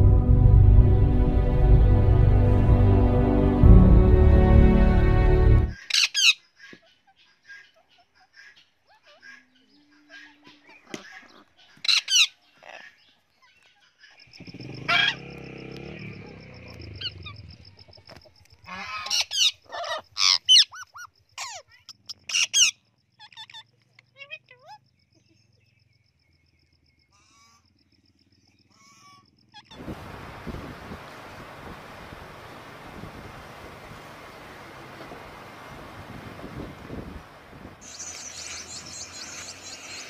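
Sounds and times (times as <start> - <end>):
parrots squawking: 5.8 - 13.0, 14.9 - 15.2, 18.7 - 24.8
high pulsing chirr: 37.1 - 40.0.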